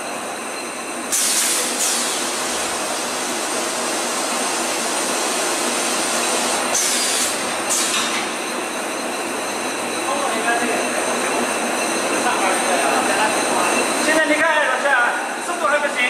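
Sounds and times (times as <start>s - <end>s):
compressed air hisses: 1.1s - 3.2s, 5.7s - 8.2s
packing machine mechanical din: 1.1s - 8.4s.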